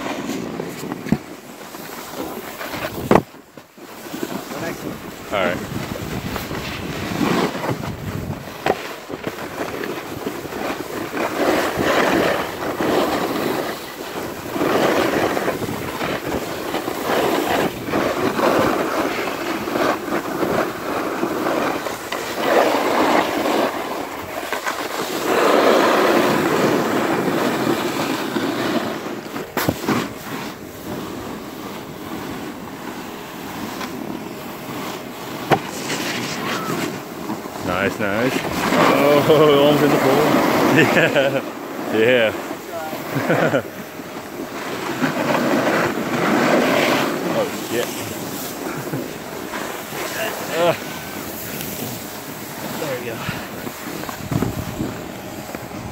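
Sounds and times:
snowboard edges scraping snow: 0.0s - 55.9s
wind rushing over microphone: 2.7s - 3.3s, 4.4s - 9.3s, 45.6s - 55.9s.

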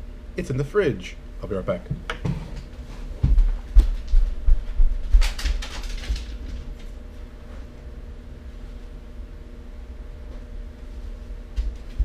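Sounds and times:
footsteps thudding on floor: 1.9s - 5.2s.

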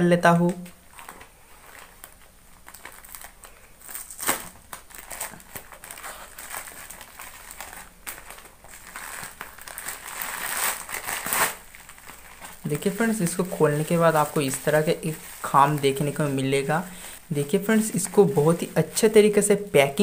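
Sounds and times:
plastic bag tearing and crinkling: 0.9s - 19.5s.

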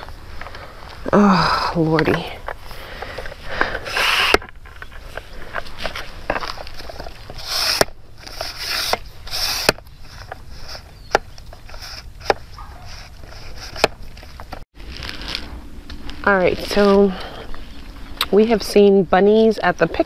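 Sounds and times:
camera handling rustling: 2.1s - 16.2s.

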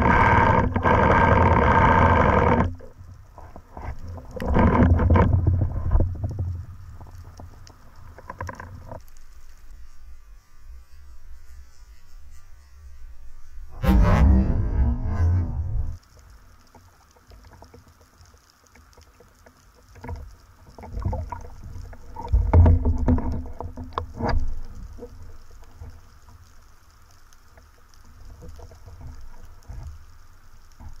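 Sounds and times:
low underwater rumble: 13.6s - 16.0s.

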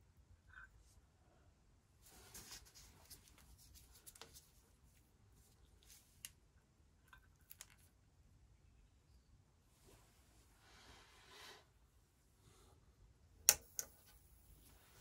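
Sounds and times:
soft handling rustles: 2.0s - 6.3s
small clip clicks: 13.4s - 14.0s.

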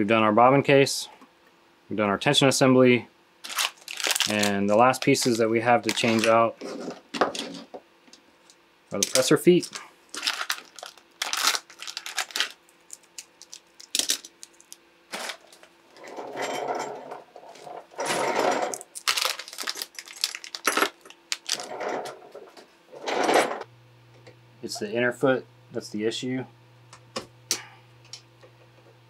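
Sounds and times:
plastic bag crinkling: 3.4s - 7.6s, 8.9s - 15.8s, 17.5s - 21.9s
small metal parts clinking: 9.0s - 21.8s.

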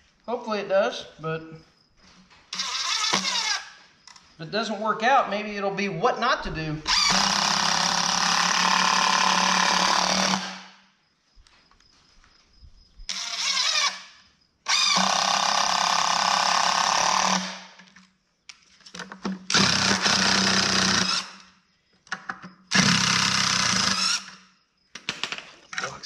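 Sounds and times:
impact driver hammering screws: 2.5s - 3.7s, 6.9s - 10.7s, 14.7s - 17.8s, 19.4s - 21.4s, 22.7s - 24.4s.

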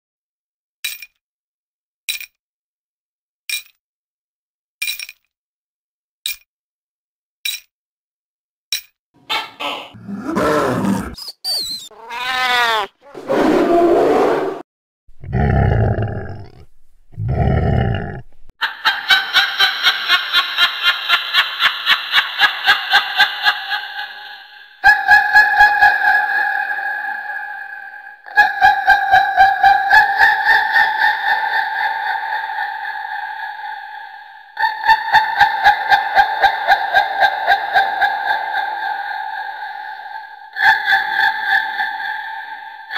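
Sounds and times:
witch cackling laugh: 9.3s - 11.2s, 18.6s - 42.9s.

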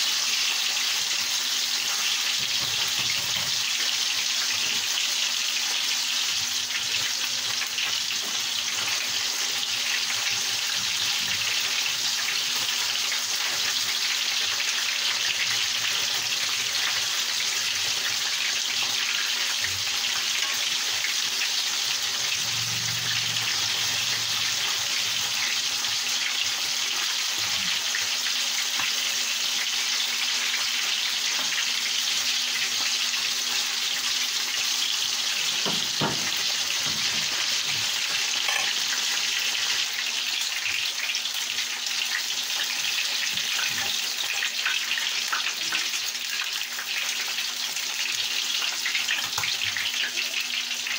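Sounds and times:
fish sizzling in hot oil: 0.0s - 50.9s.

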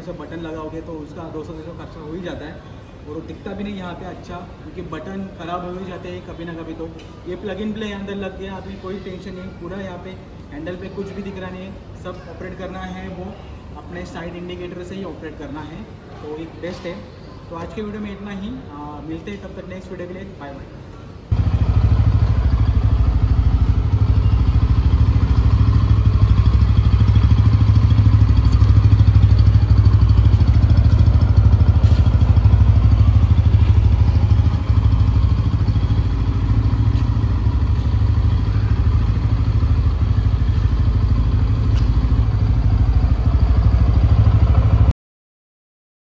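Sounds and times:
motorcycle engine idling: 21.3s - 44.9s.

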